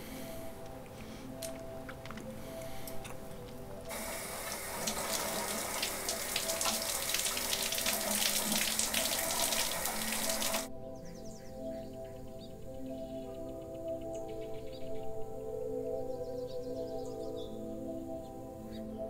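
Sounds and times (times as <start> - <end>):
soft background music: 0.0 - 19.0
shower water spraying: 3.9 - 10.7.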